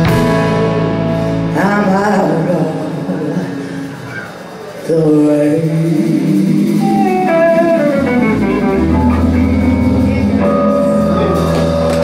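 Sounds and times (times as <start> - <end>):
bass guitar: 0.0 - 12.0
electric guitar line: 0.0 - 12.0.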